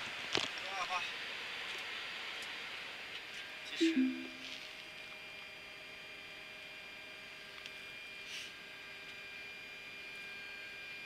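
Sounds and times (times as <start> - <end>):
faint steady tones: 3.7 - 4.6.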